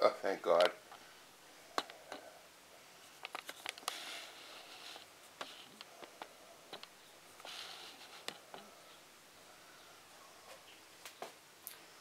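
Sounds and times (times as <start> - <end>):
rustling: 0.5 - 9.0
faint clicks and taps: 1.8 - 2.3, 3.2 - 4.0, 4.9 - 8.7.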